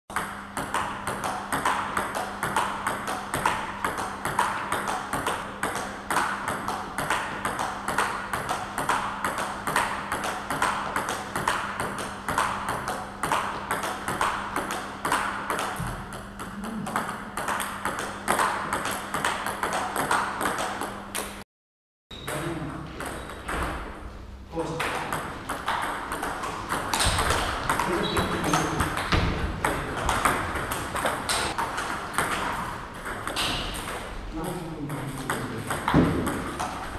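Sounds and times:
table tennis ball clicking: 25.0s - 34.1s.

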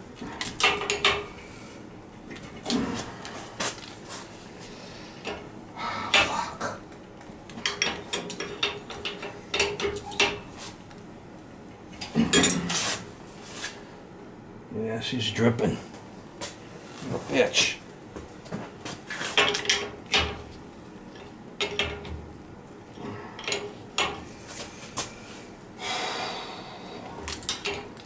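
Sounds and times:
wrench clinking and scraping on metal: 27.3s - 28.0s.

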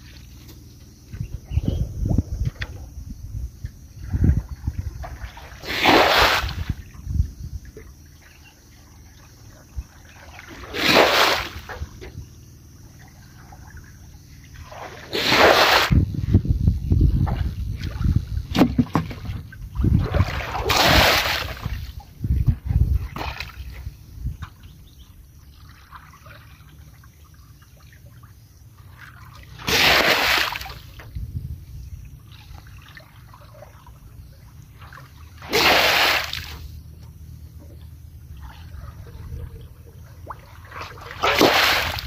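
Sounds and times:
muddy water sloshing: 4.0s - 16.0s, 17.1s - 31.2s, 32.0s - 42.0s
water pouring from basin: 40.6s - 42.0s.

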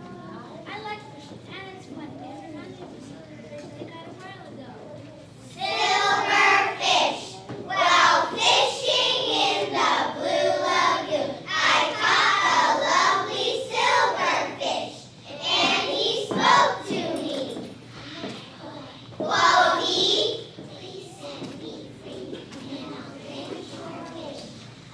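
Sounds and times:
children singing together: 5.6s - 17.7s, 19.2s - 24.6s.

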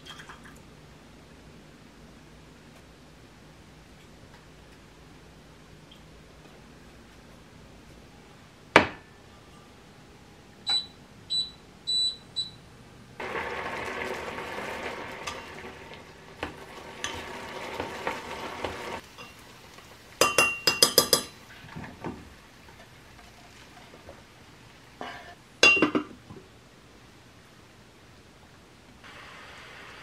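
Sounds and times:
rice sizzling in a pot: 13.2s - 21.5s, 29.0s - 30.0s
metal kitchenware clinking: 20.2s - 21.4s.

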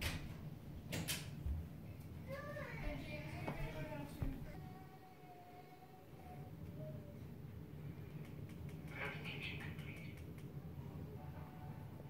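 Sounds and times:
faint melodic music: 10.8s - 12.0s.

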